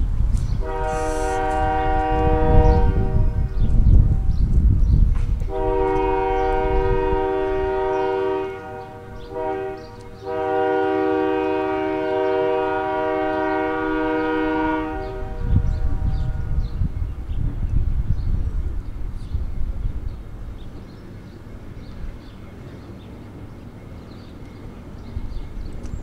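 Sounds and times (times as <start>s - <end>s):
train air horn blasts: 0.6s - 3.9s, 5.4s - 16.7s.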